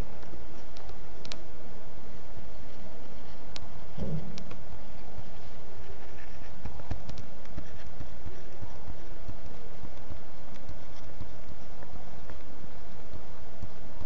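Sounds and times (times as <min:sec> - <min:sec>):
stylus tapping on tablet screen: 0:05.2 - 0:12.4.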